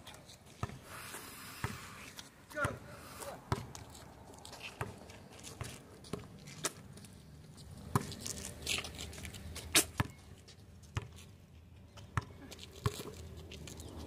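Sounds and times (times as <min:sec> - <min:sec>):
basketball bouncing on asphalt: 0:00.5 - 0:00.9, 0:01.6 - 0:01.9, 0:02.5 - 0:04.0, 0:04.6 - 0:07.1, 0:07.7 - 0:08.3, 0:09.3 - 0:10.2, 0:10.9 - 0:11.2, 0:11.8 - 0:13.3.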